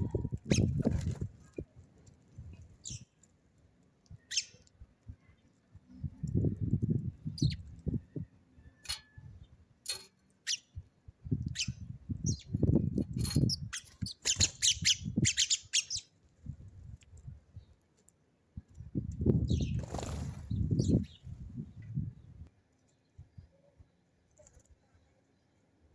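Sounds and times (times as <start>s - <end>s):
sparrows chirping: 0.0s - 0.8s, 2.7s - 3.3s, 4.1s - 16.2s, 18.9s - 24.1s.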